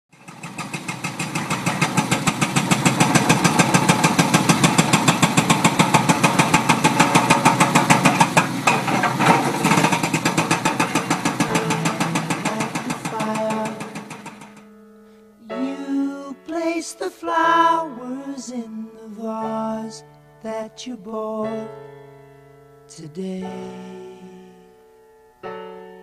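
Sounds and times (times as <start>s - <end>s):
hydraulic breaker hammering rock: 0.1s - 14.6s
machine engine: 0.1s - 14.6s.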